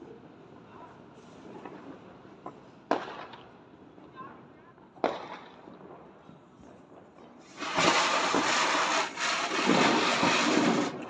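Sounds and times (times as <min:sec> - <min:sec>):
firework spark hiss: 0:07.5 - 0:11.0.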